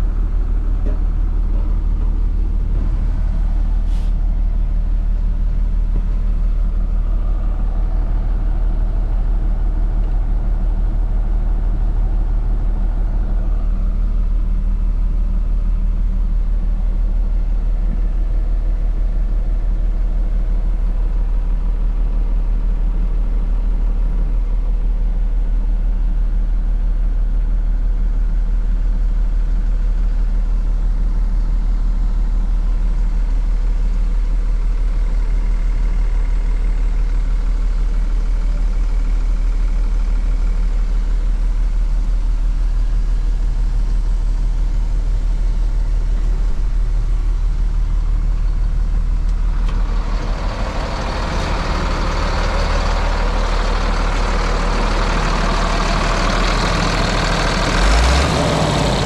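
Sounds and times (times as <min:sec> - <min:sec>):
truck engine idling: 0:00.0 - 0:59.0.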